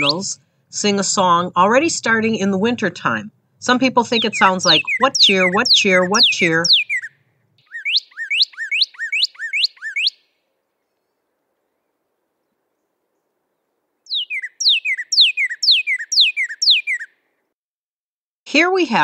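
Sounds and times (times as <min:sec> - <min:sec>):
cardinal singing whistles: 0:00.0 - 0:00.4, 0:03.9 - 0:10.3, 0:14.1 - 0:17.2.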